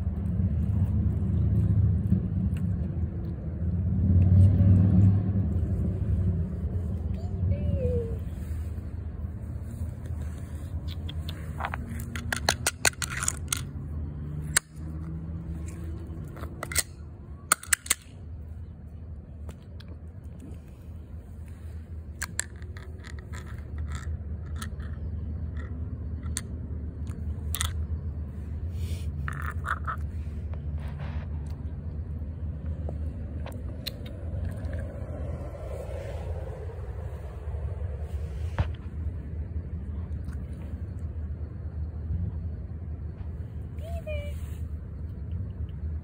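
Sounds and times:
metal can clicks and scrapes: 10.9 - 13.7, 16.2 - 18.1.

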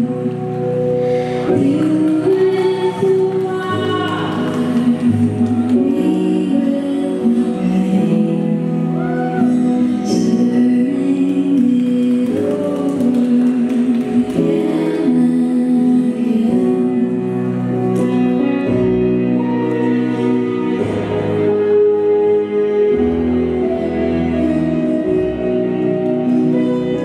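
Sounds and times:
person singing: 0.0 - 17.5
slow ballroom dance music: 0.0 - 27.0.

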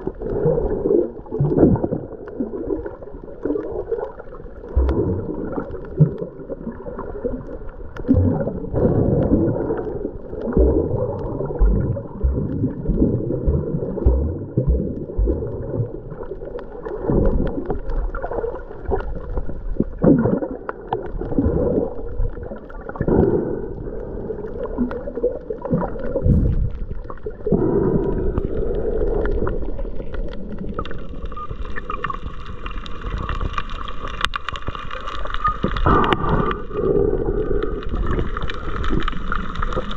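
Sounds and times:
muffled underwater water rushing: 0.0 - 39.9.

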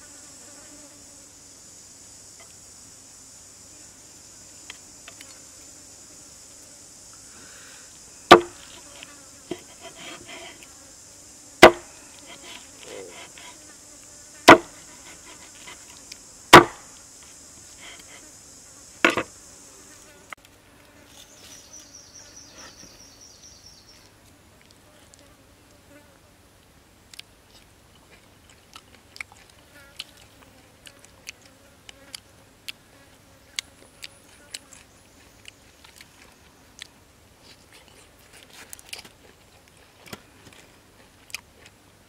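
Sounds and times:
high insect drone: 0.0 - 26.1
faint pulsing insect trill: 0.0 - 26.6, 27.3 - 38.3
cleaver chopping on wooden block: 8.3 - 8.6, 11.6 - 12.6, 14.5 - 14.7, 16.5 - 16.8, 19.0 - 19.3.

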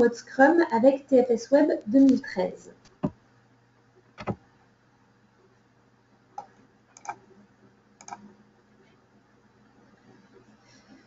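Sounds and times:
faint room hiss: 0.0 - 11.0
computer mouse clicks: 6.4 - 7.2, 8.0 - 8.3.

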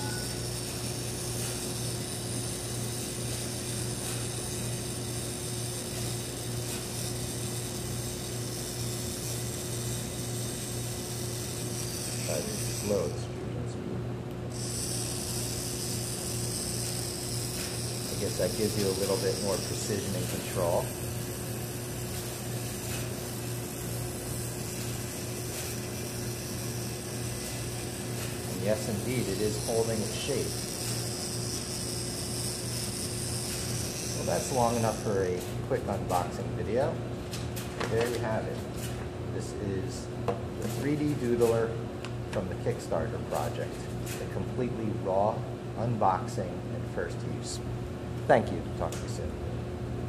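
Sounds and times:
printing pen motor humming: 0.0 - 13.4, 14.5 - 36.9.

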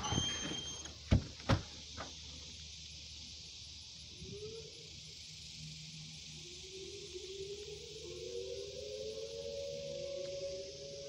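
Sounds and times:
door opening: 0.0 - 1.7
outdoor air hiss: 0.0 - 11.0.

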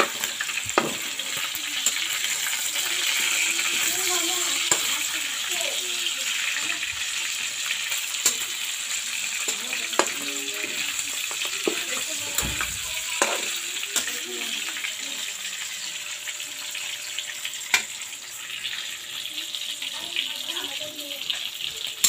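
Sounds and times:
meat sizzling in a wok: 0.0 - 22.0
metal spatula clinking and scraping: 0.8 - 4.9, 9.4 - 14.3.

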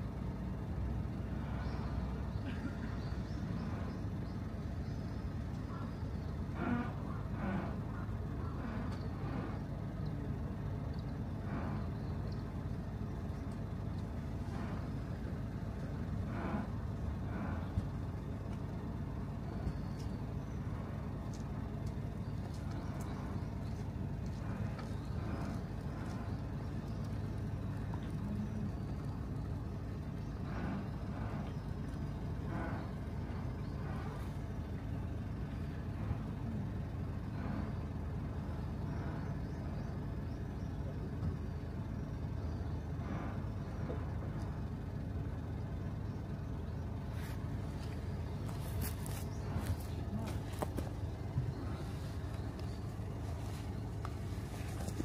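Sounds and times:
low mechanical hum: 0.0 - 55.0.

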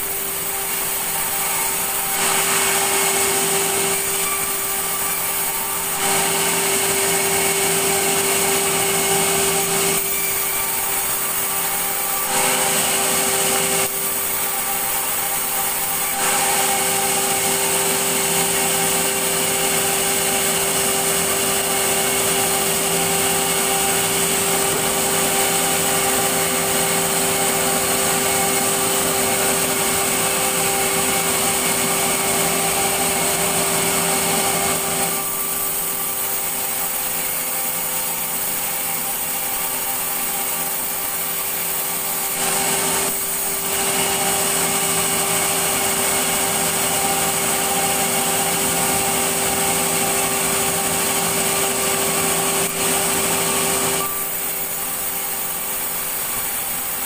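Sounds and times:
circular saw whine: 0.0 - 57.0
saw blade cutting timber: 0.0 - 57.0.

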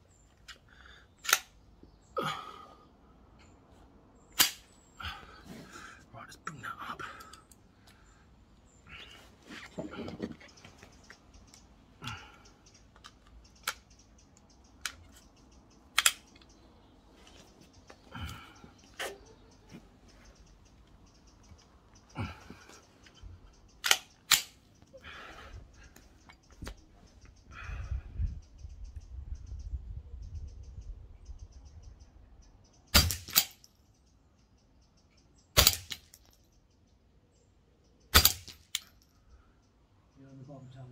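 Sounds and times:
rifle action clicking: 16.0 - 16.5
rifle shots: 33.0 - 33.5, 35.6 - 36.0, 38.2 - 38.6.

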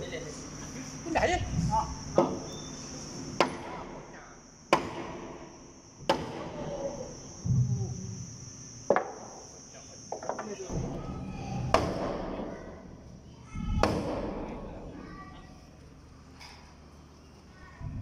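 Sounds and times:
high insect buzz: 0.0 - 18.0
hammer blows on wooden planks: 4.7 - 6.6, 11.6 - 12.5, 13.5 - 14.5.

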